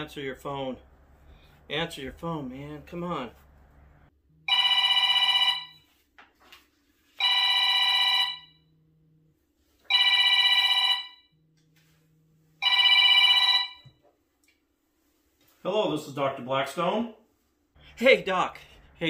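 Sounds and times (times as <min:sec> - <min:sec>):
phone trilling ringtone: 0:04.5 - 0:05.9, 0:07.2 - 0:08.7, 0:09.9 - 0:11.4, 0:12.6 - 0:13.9.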